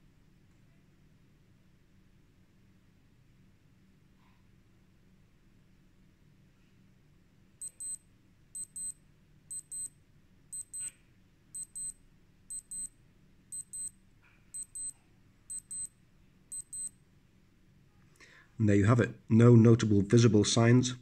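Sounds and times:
watch alarm double beeps: 7.6s - 8.0s, 8.6s - 10.9s, 11.6s - 14.0s, 14.6s - 17.0s.

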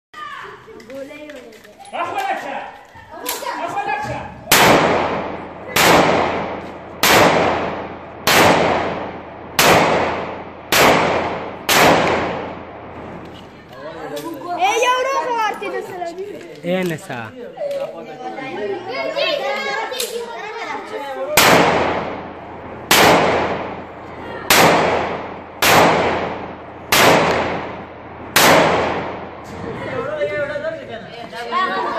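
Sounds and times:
pistol shots with echo: 4.5s - 12.9s, 21.4s - 29.4s.

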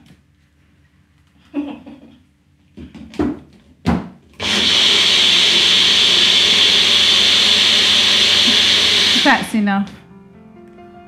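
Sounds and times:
blender motor running: 4.4s - 9.6s.

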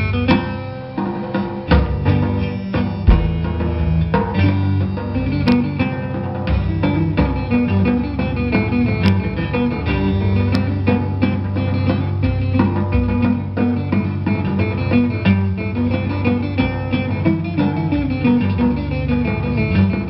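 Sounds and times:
drum kit: 1.0s - 20.0s
plucked lute notes: 1.6s - 20.0s
drumstick clicks: 3.1s - 3.6s.

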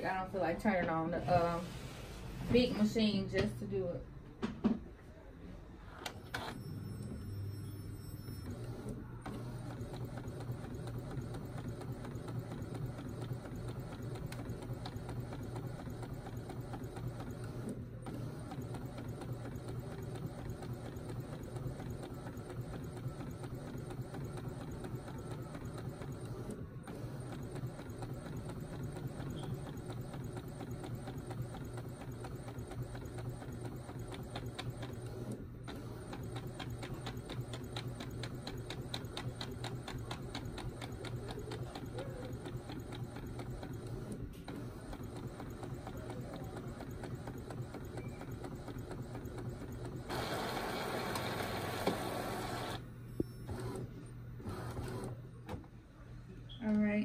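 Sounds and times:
printer whirring and humming: 6.0s - 55.7s
fast even printer ticks: 9.7s - 35.1s, 35.7s - 50.3s.

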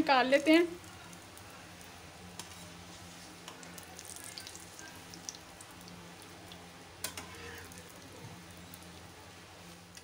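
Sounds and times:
oil crackling and popping: 0.6s - 9.1s.

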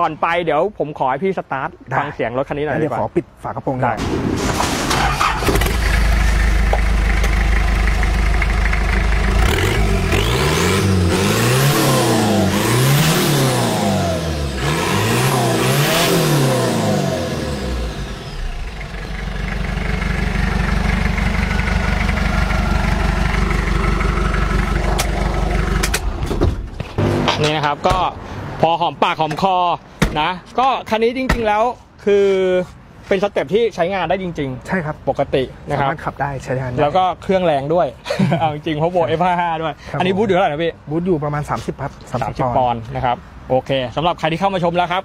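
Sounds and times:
turbocharged engine revving: 5.2s - 26.1s.

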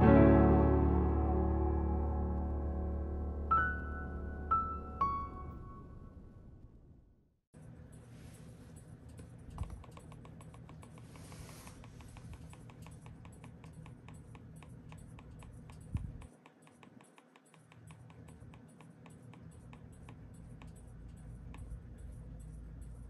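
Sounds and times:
laptop keys clicking: 8.7s - 23.0s.

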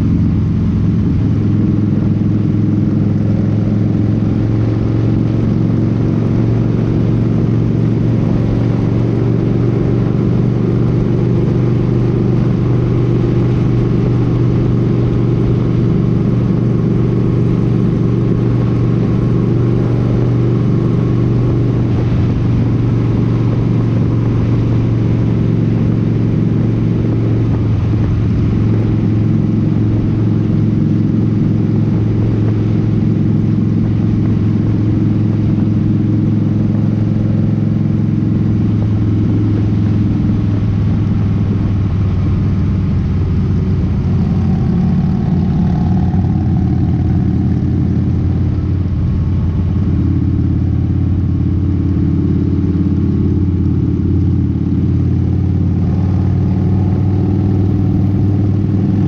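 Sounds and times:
motorcycle engine droning: 0.0s - 59.0s
wind and road noise: 0.0s - 59.0s.

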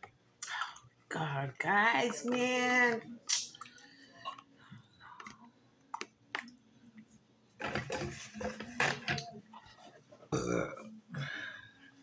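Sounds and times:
mouth smacks while eating: 3.2s - 4.5s
sharp mouth clicks: 3.3s - 4.4s.

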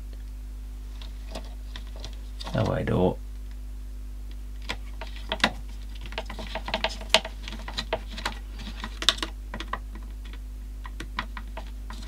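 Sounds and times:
plastic parts clicking and tapping: 4.6s - 12.0s.

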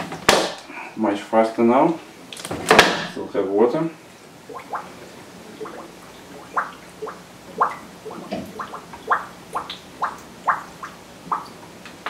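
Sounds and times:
faint steady hum: 0.0s - 12.0s
water gurgling through funnel: 4.4s - 11.6s.

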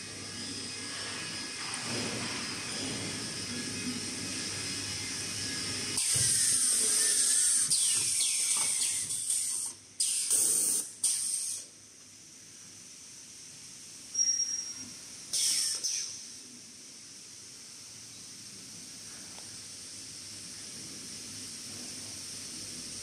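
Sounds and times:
machine low steady noise: 0.0s - 7.6s, 11.7s - 23.0s
machine hissing: 0.0s - 11.8s, 14.2s - 16.5s.

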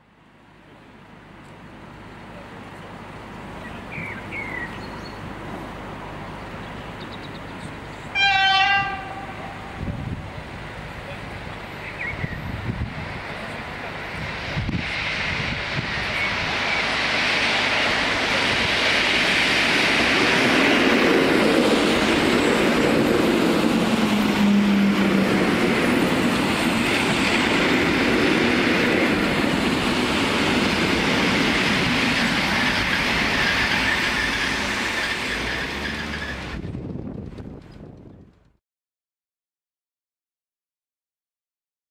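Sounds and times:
train wheels rumbling and clacking: 2.7s - 38.6s
brake squeal: 33.3s - 36.8s.

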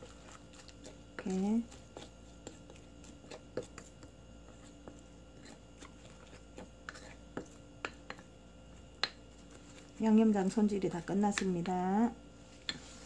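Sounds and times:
wet squishing of stirred sauce: 0.0s - 10.0s.

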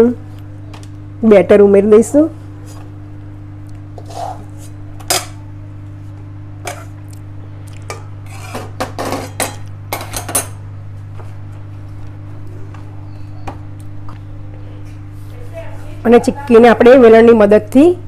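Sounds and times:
steady low hum: 0.0s - 18.0s
metal spoon scraping metal pan: 8.2s - 9.4s.

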